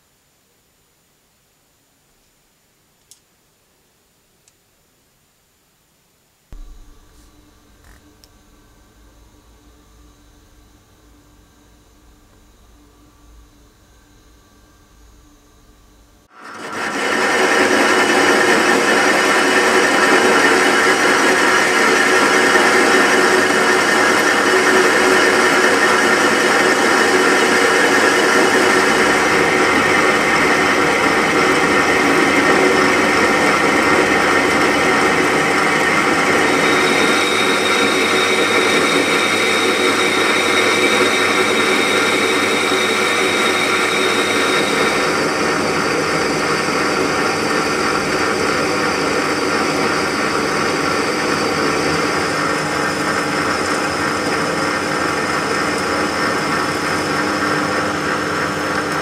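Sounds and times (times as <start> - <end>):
cutting tool on spinning metal: 6.6 - 14.2, 35.8 - 50.3
metal lathe motor whining: 6.6 - 54.3
thin high tone: 36.4 - 48.6.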